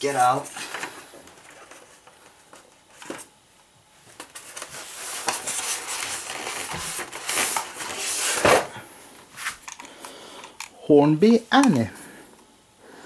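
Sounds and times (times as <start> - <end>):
hands rustling in polystyrene tray: 4.1 - 8.7.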